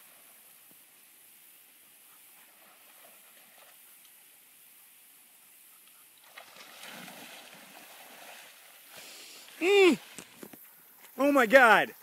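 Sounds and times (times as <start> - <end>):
distant water splashing: 5.7 - 11.8.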